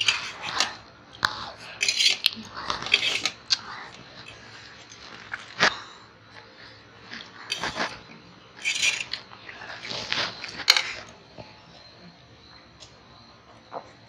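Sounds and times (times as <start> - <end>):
forks scraping on steel plates: 0.0 - 0.8, 1.8 - 3.4, 7.5 - 8.0, 8.6 - 9.2, 9.8 - 11.0.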